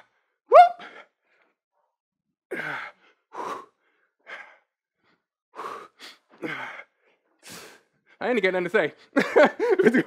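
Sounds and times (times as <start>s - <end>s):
person breathing hard: 2.5s - 8.1s.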